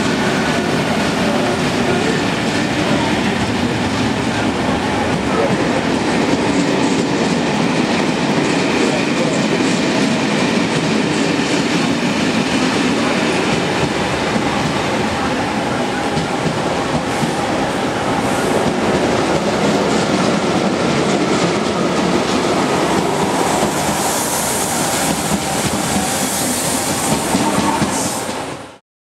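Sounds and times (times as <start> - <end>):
train passing at speed: 0.0 - 28.8
hiss: 23.0 - 28.5.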